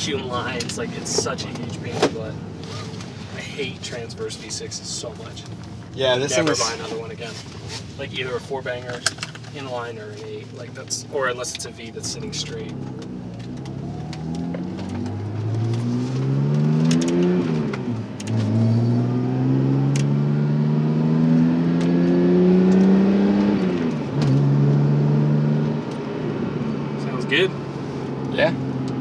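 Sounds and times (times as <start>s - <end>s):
car engine accelerating: 0.0s - 29.0s.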